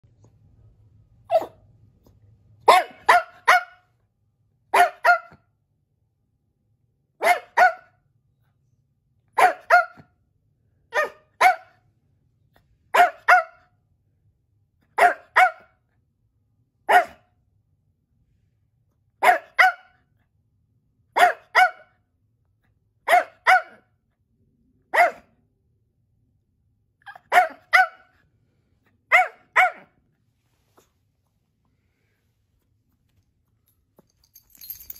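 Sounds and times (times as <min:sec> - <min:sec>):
small dog barking: 0:01.3 - 0:01.6, 0:02.6 - 0:03.9, 0:04.7 - 0:05.5, 0:07.2 - 0:08.0, 0:09.3 - 0:10.1, 0:10.9 - 0:11.8, 0:12.9 - 0:13.7, 0:14.9 - 0:15.8, 0:16.9 - 0:17.3, 0:19.2 - 0:20.0, 0:21.2 - 0:22.0, 0:23.0 - 0:23.9, 0:24.9 - 0:25.4, 0:27.0 - 0:28.2, 0:29.1 - 0:30.0.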